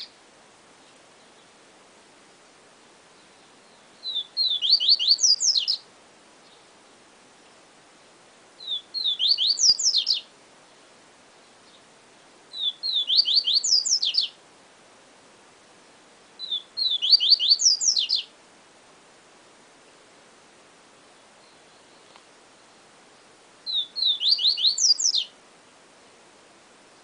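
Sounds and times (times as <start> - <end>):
bird singing whistled phrase: 4.0 - 5.8, 8.6 - 10.3, 12.5 - 14.3, 16.4 - 18.3, 23.7 - 25.3.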